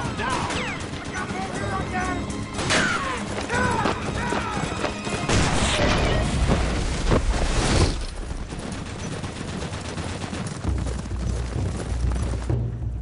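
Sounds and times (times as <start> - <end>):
gunshots: 0.0 - 1.5, 5.1 - 6.4.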